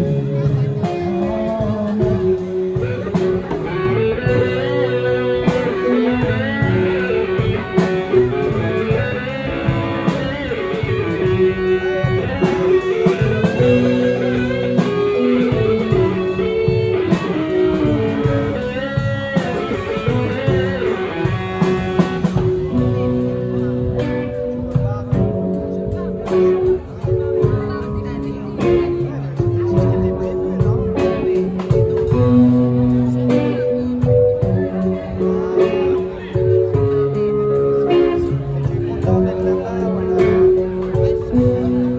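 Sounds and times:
bluesy rock band playing: 0.0 - 41.9
electric guitar lead with bent notes: 0.0 - 41.9.

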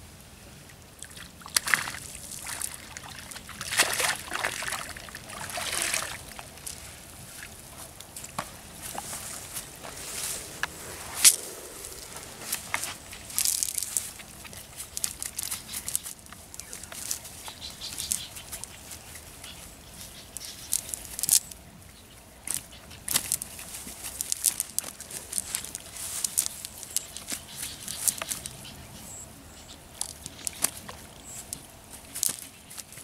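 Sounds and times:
fish flopping and slapping: 1.6 - 6.8.

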